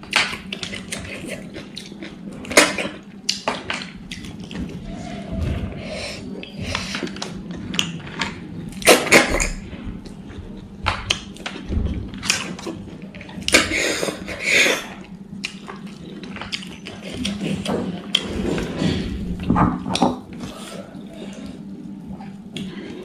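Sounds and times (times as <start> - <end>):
wet chewing: 0.1 - 4.8, 10.0 - 19.1.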